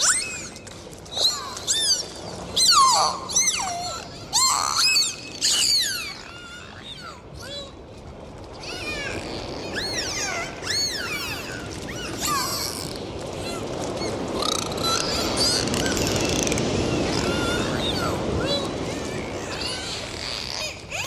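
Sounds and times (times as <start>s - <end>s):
dolphins whistling underwater: 0.0s - 7.2s, 8.7s - 13.0s
rush of water noise: 0.0s - 21.0s.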